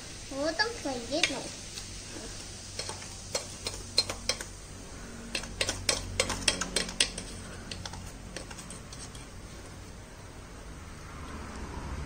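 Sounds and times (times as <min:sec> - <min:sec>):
metal spoon scraping steel bowl: 0:05.3 - 0:09.4.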